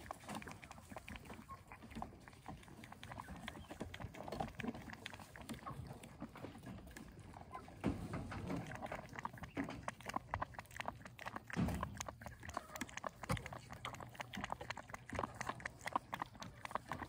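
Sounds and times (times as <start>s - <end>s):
wet clicks and milk squirts: 0.0s - 17.0s.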